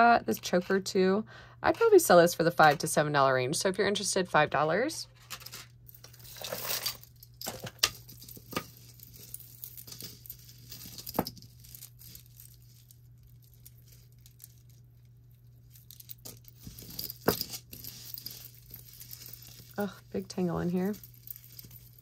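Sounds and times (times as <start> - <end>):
jewelry clinking and tapping: 5.4 - 22.0.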